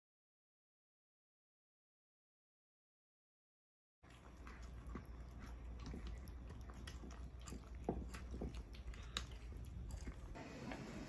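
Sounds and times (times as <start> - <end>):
low steady hum: 4.0 - 11.0
cats crunching dry kibble: 4.1 - 10.8.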